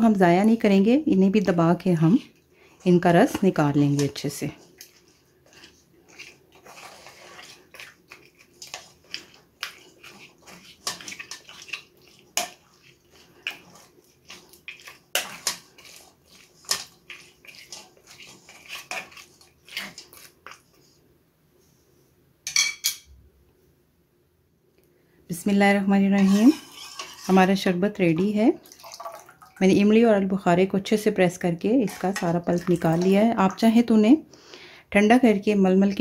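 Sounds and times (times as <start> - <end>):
wooden spoon scraping mesh strainer: 1.9 - 21.0, 26.0 - 28.3, 31.8 - 33.3.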